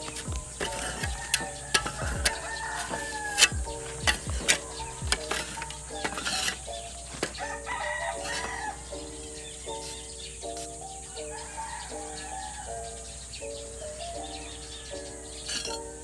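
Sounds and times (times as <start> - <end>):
hoe clacking against bricks: 0.0 - 10.8, 15.4 - 16.0
hoe scraping through ash: 0.0 - 11.0, 15.1 - 16.0
background music melody: 0.0 - 16.0
rooster crowing: 0.3 - 5.1, 7.4 - 9.0, 11.1 - 13.2.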